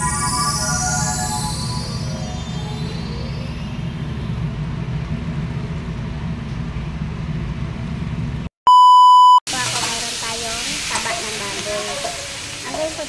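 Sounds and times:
electronic music: 0.0 - 4.7.

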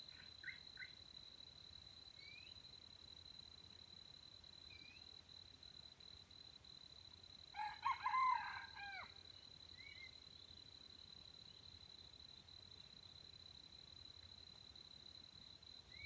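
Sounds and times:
faint high-pitched whine: 0.0 - 16.0
rooster crowing: 7.5 - 9.2.

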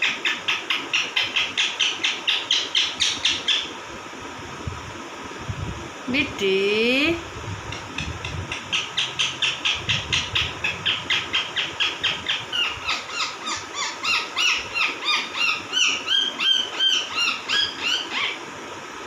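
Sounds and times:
parakeets chirping: 0.0 - 3.8, 7.6 - 18.4.

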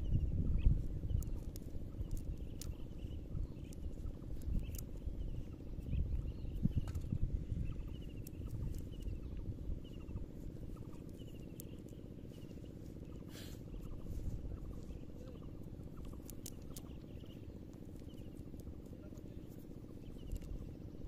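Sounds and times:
bird chirping: 0.0 - 21.0
low rumble: 0.0 - 21.0
sharp clicks: 1.1 - 5.4, 16.0 - 20.8.

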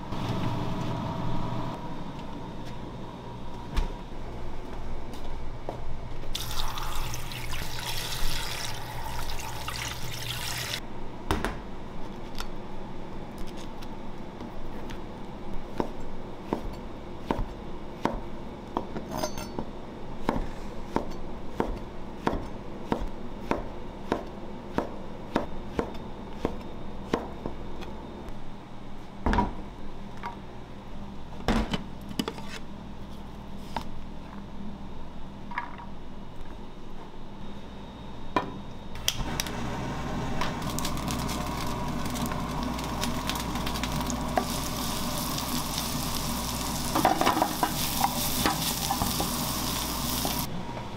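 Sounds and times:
running water: 6.4 - 10.8.

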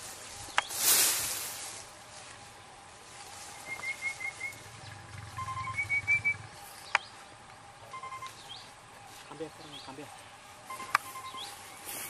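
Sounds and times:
bird whistling calls: 3.6 - 7.1, 10.7 - 11.7.

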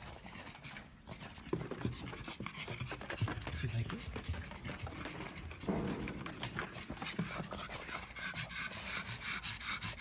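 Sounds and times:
dog panting: 0.0 - 10.0
paws clicking: 0.0 - 10.0.

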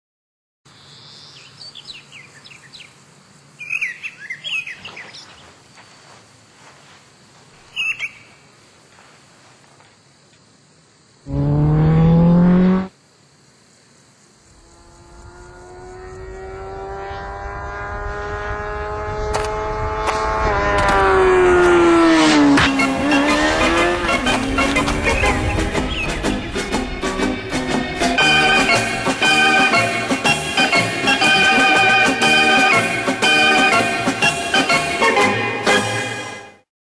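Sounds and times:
birds chirping: 3.6 - 6.2, 7.6 - 8.4, 22.6 - 26.5
motorcycle engine: 11.3 - 12.9, 14.5 - 30.3.

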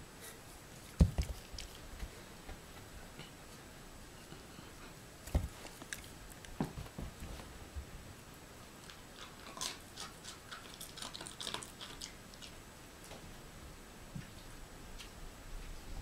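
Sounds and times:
dog crunching a treat: 0.9 - 1.9, 5.5 - 6.6, 8.8 - 12.6.

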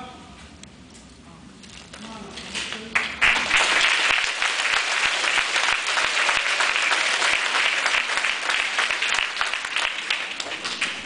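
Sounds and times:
children applauding: 3.0 - 11.0.

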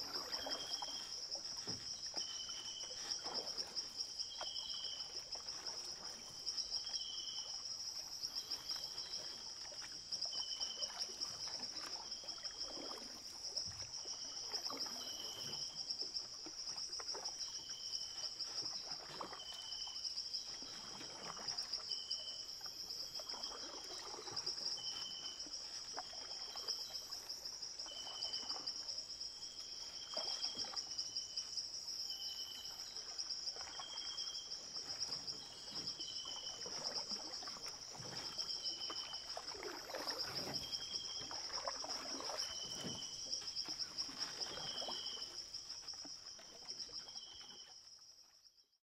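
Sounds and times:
water trickling and splashing: 0.0 - 48.7.

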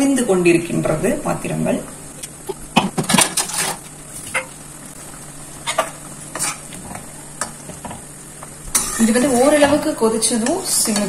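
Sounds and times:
faint sizzle of cooking: 3.8 - 11.0.

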